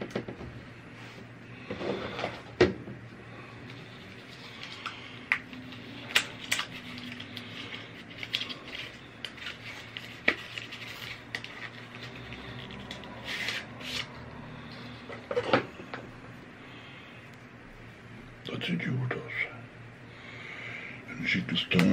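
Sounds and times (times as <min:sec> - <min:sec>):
plastic packaging rustling: 0:03.7 - 0:14.2.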